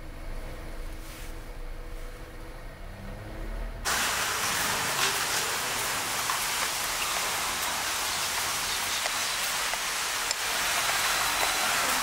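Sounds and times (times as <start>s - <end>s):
steady ambient hiss: 3.9s - 12.0s.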